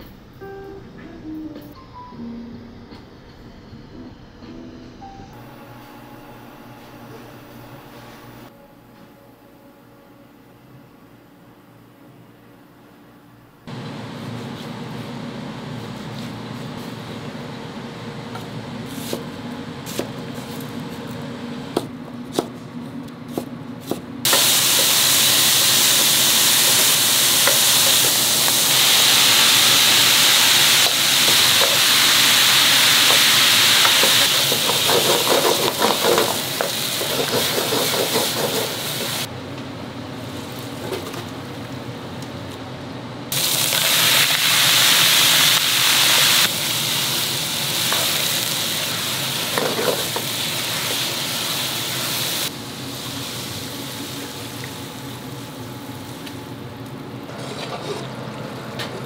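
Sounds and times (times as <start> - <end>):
food sizzling in a pan: 24.3 - 39.3, 43.3 - 56.2.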